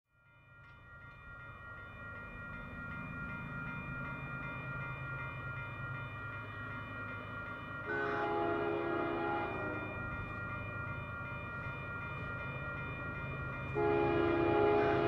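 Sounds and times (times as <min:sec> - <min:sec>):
crossing bell ringing: 0:00.1 - 0:15.0
freight train rumble: 0:01.2 - 0:15.0
locomotive horn: 0:07.9 - 0:09.9, 0:13.8 - 0:15.0.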